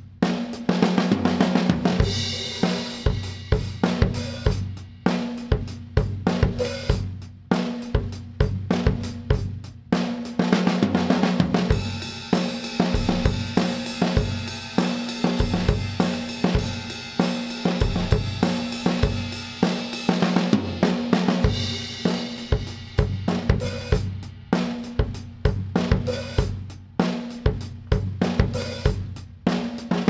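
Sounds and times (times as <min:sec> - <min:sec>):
drum kit groove: 0:00.0 - 0:30.0.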